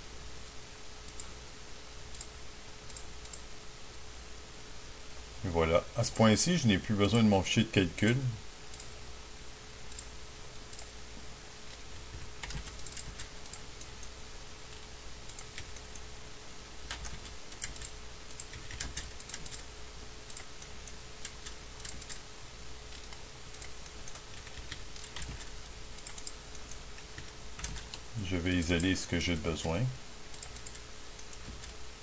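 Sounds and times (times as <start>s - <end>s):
faint steady hum: 0.0s - 32.0s
computer keyboard typing: 11.7s - 14.1s, 14.7s - 16.0s, 16.9s - 19.7s, 20.3s - 22.2s, 22.9s - 28.0s, 30.3s - 31.8s.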